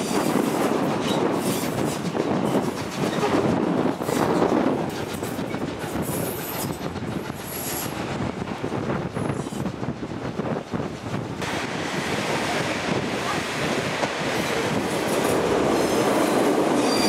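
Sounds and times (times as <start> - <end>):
train wheels running on rails: 0.0 - 17.0
high wheel squeals: 15.6 - 17.0.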